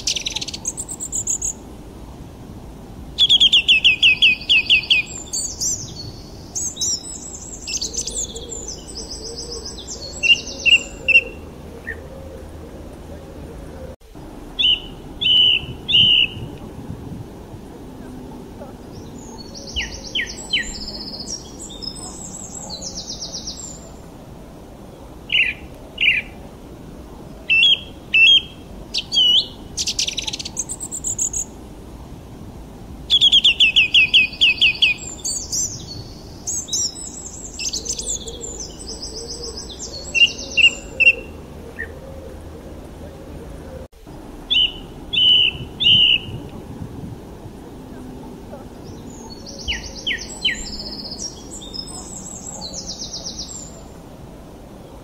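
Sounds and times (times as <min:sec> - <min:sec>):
songbirds chirping and singing: 0:00.0 - 0:01.8, 0:02.7 - 0:31.7, 0:33.1 - 0:55.0
low background noise: 0:00.0 - 0:55.0.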